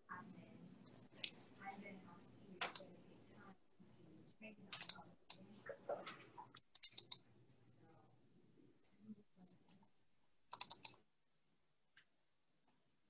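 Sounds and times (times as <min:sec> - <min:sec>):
faint low murmur: 0:00.0 - 0:06.6
computer keys clicking: 0:02.6 - 0:02.9, 0:04.7 - 0:05.4, 0:06.0 - 0:07.2, 0:10.5 - 0:11.0.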